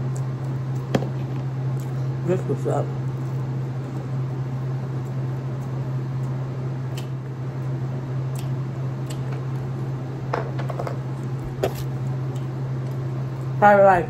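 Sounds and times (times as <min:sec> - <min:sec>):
person eating with clicks and smacks: 0:00.0 - 0:02.0, 0:05.0 - 0:09.7, 0:11.1 - 0:13.5
steady low hum: 0:00.0 - 0:14.0.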